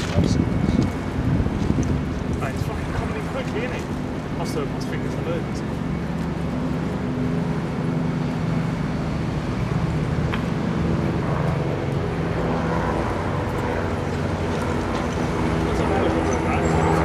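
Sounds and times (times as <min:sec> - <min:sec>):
low traffic engine drone: 0:00.0 - 0:17.0.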